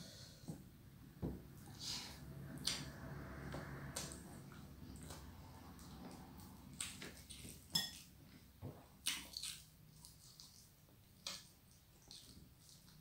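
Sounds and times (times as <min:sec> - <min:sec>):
wet mouth clicks and smacks eating: 0:09.0 - 0:13.0.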